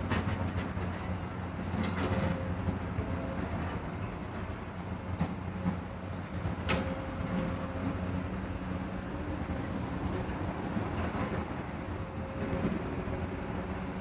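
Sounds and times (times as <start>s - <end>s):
steam train low rumble: 0.0s - 14.0s.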